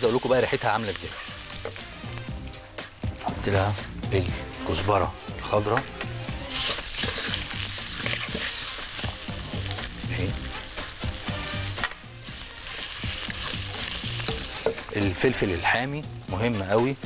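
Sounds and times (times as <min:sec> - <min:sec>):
noodles sizzling in a pot: 0:00.0 - 0:02.6, 0:06.2 - 0:17.0
wooden spoon stirring: 0:06.5 - 0:10.8.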